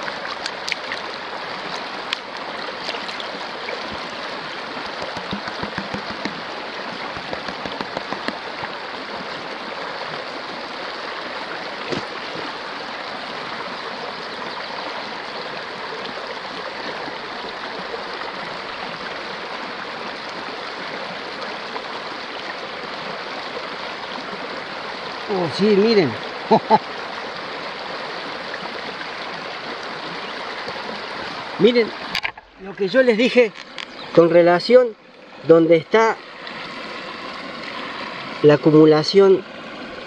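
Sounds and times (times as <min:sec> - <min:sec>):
light water splashes: 0:00.0 - 0:13.8
river rushing over rocks: 0:00.0 - 0:26.2.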